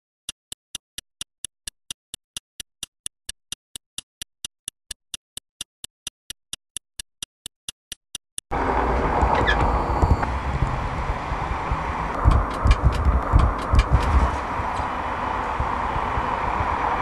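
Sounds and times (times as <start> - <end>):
sharp dry ticking: 0.3 - 8.5.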